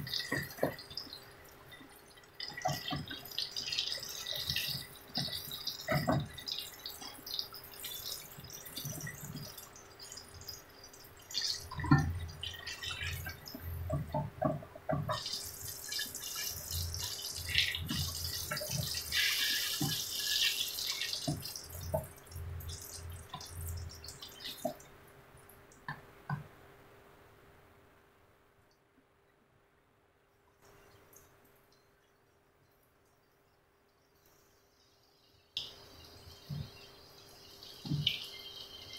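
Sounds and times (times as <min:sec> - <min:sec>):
frying in hot oil sizzling: 0:02.4 - 0:24.8, 0:35.6 - 0:38.9.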